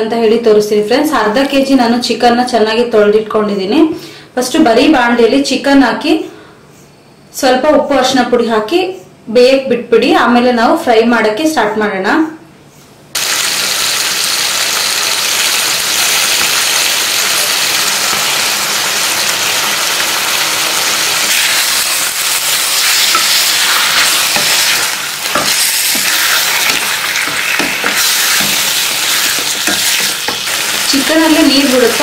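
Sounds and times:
chicken sizzling in a pan: 13.2s - 32.0s
wooden spatula scraping a pan: 21.3s - 32.0s.

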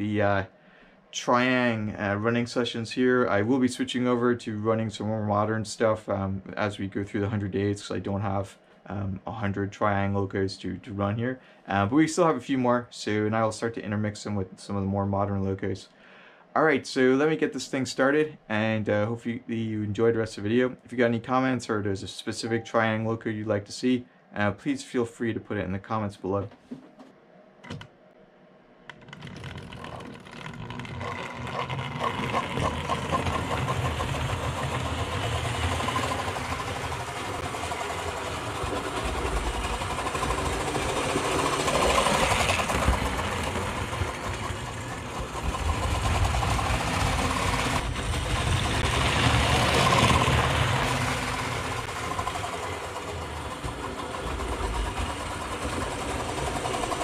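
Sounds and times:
model train whirring and rattling: 28.9s - 57.0s.

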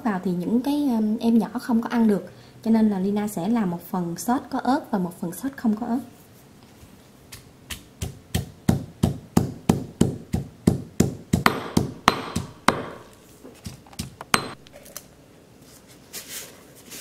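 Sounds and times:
pestle pounding in stone mortar: 7.3s - 14.6s.

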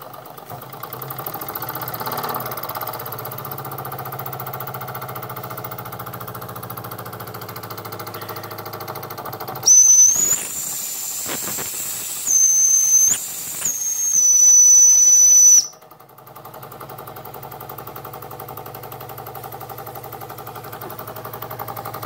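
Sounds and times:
small steam engine exhaust beat: 7.9s - 15.9s
shrill steam whistle: 9.6s - 15.8s.

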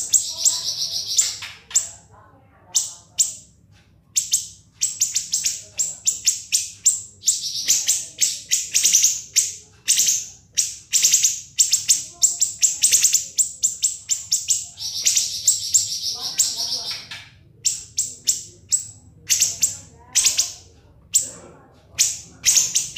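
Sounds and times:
bird singing shrill notes: 0.0s - 1.9s, 4.2s - 20.6s.

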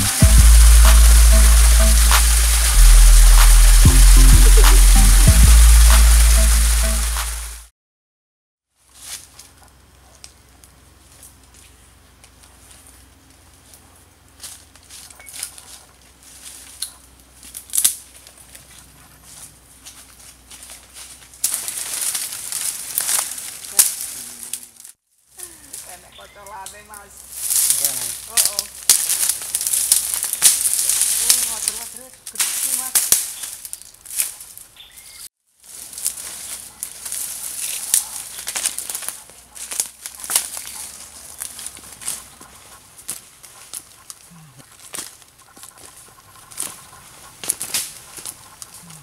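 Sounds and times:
dry palm fronds crunching: 0.0s - 7.6s, 8.8s - 34.9s, 35.5s - 49.0s
footsteps through undergrowth: 8.8s - 25.0s, 25.6s - 49.0s.

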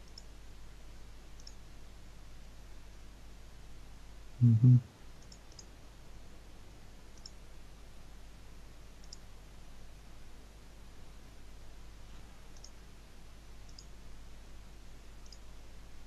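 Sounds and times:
computer mouse clicking: 0.0s - 0.3s, 1.4s - 1.6s, 5.2s - 5.7s, 7.1s - 7.4s, 9.0s - 9.3s, 12.5s - 12.8s, 13.7s - 13.9s, 15.2s - 15.5s
short loud low-pitched sounds: 4.4s - 4.9s.

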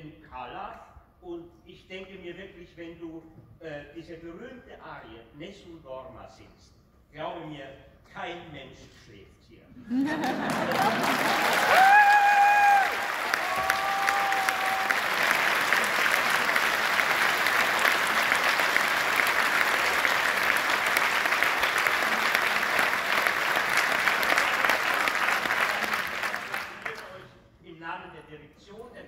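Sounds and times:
audience applauding: 10.1s - 27.3s
person cheering: 11.2s - 15.4s.

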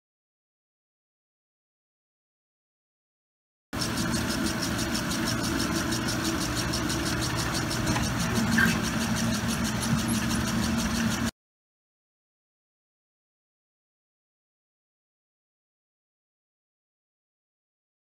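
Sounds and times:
conveyor machinery humming: 3.8s - 11.3s
fast even rattle: 3.8s - 11.3s.

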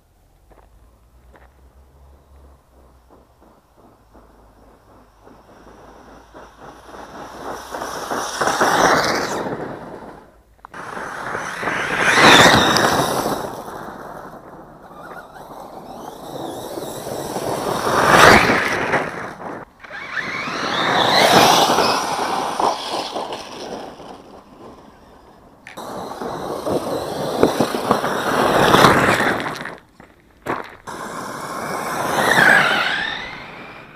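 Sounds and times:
rc truck motor whine: 0.2s - 29.8s, 30.9s - 33.9s
tyres and stones on gravel: 0.3s - 10.8s, 25.6s - 32.0s.

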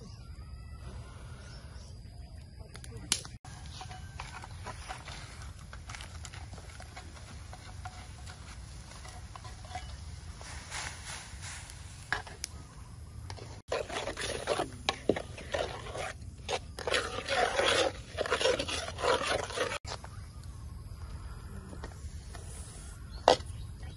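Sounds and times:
ladle scraping a metal wok: 3.5s - 12.3s, 13.6s - 19.8s.

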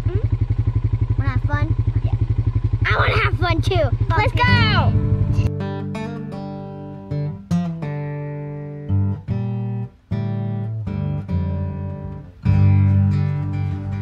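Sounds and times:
acoustic guitar strumming chords: 4.1s - 14.0s.

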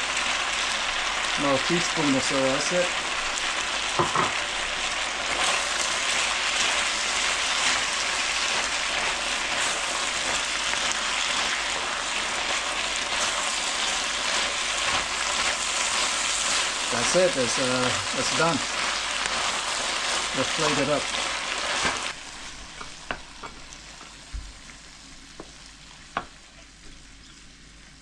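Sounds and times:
food sizzling in a frying pan: 0.0s - 28.0s
wooden spatula scraping: 5.3s - 23.1s.

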